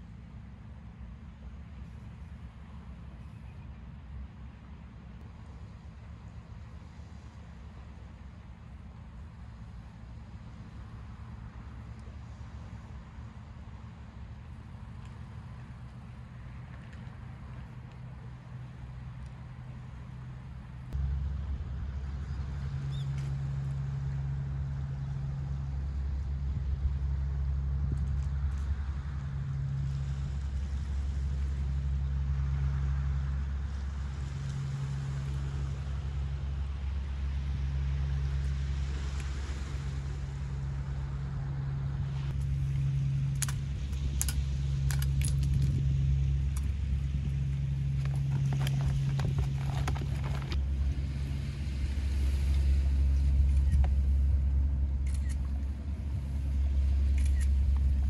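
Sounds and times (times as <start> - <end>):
clicks and rattles: 48.0 - 50.6.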